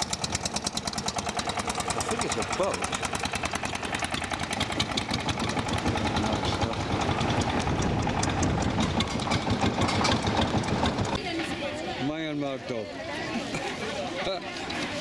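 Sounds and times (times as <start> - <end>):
motorboat engine chugging: 0.0 - 11.8.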